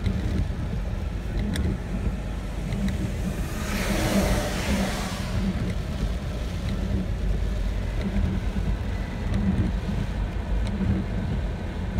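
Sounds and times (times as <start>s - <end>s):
steady low rumble: 0.0s - 11.9s
vehicle passing whoosh: 2.4s - 6.5s.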